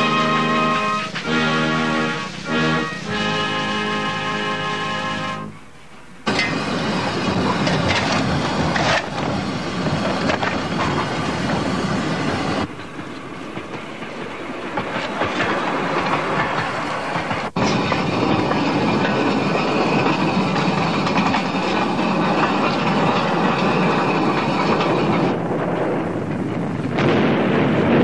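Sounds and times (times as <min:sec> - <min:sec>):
steam locomotive hissing: 0:00.0 - 0:25.5
rail clatter: 0:06.2 - 0:28.0.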